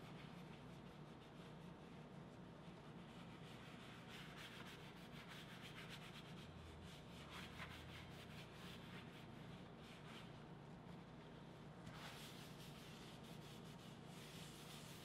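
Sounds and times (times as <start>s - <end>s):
low room hum: 0.0s - 15.0s
paper towel scrubbing leather: 11.0s - 15.0s.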